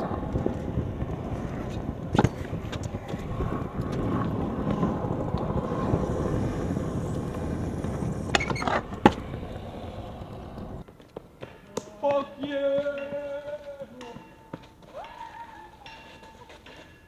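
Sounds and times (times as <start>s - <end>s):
scooter wheels rolling on tiles: 0.0s - 17.0s.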